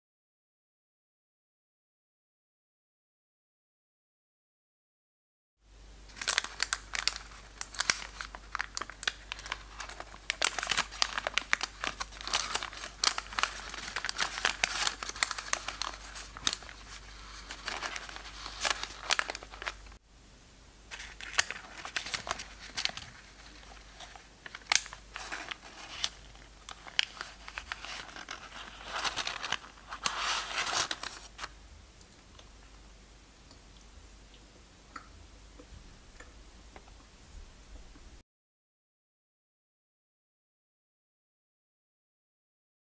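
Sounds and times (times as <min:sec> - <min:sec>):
paper muffin liner crinkling: 0:06.1 - 0:20.0, 0:20.9 - 0:31.5.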